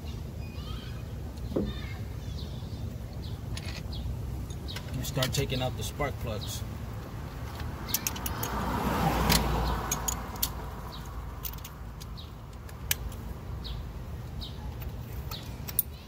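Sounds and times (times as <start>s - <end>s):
car passing by: 7.4s - 11.3s
ratchet metallic clicks: 7.9s - 8.6s, 9.3s - 10.6s.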